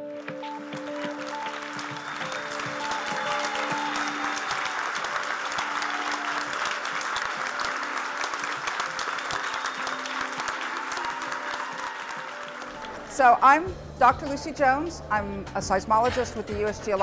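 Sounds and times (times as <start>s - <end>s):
audience applauding: 0.0s - 13.3s
soft background music: 0.0s - 17.0s.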